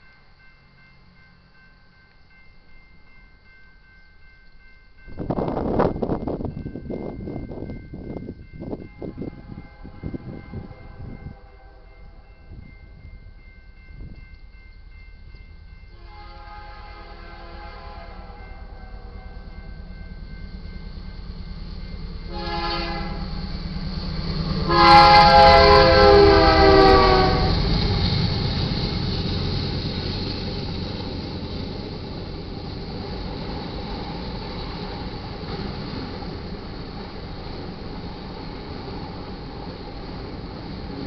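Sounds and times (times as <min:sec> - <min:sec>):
train rumbling past: 0:00.0 - 0:41.0
locomotive horn blasts: 0:08.9 - 0:12.2, 0:16.0 - 0:19.3, 0:22.3 - 0:23.5, 0:24.7 - 0:27.7.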